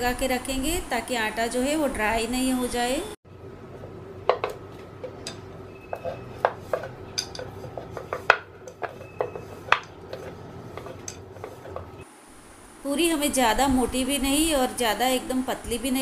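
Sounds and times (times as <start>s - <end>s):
rolling pin clacking on wooden board: 4.3s - 12.0s.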